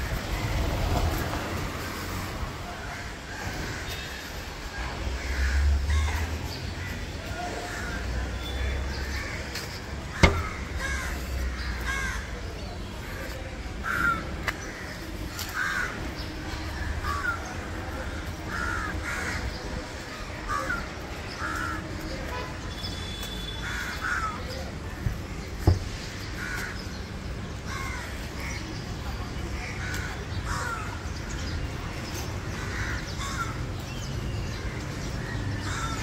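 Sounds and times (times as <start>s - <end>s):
crows cawing: 8.9s - 12.3s, 18.1s - 19.5s, 32.5s - 33.6s, 35.7s - 36.0s.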